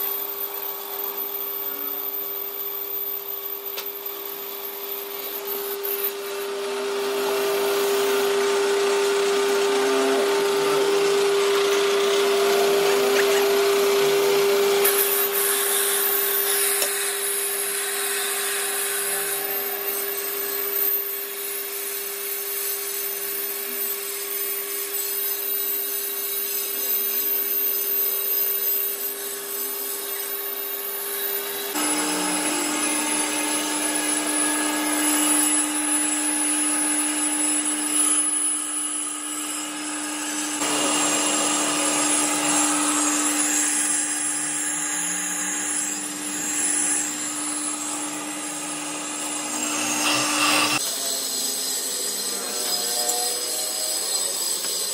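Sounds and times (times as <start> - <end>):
cutting tool scraping metal: 0.0 - 54.9
lathe motor humming: 3.2 - 25.0, 28.9 - 50.8.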